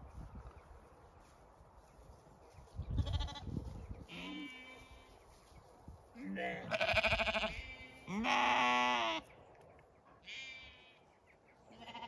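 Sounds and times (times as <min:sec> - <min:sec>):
lambs bleating: 0:03.0 - 0:03.5, 0:04.1 - 0:05.1, 0:06.4 - 0:09.2, 0:10.2 - 0:11.0, 0:11.7 - 0:12.0.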